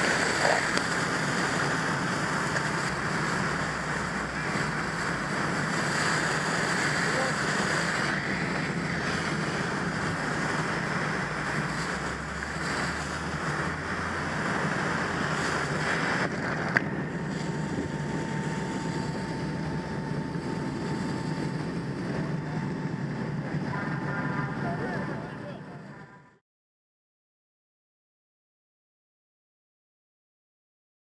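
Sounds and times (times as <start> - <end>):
fire hose spraying water: 0.0 - 22.6.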